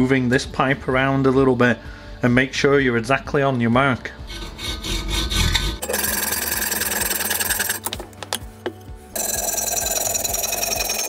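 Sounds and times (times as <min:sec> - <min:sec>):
hacksaw cutting metal pipe: 0:04.2 - 0:08.0.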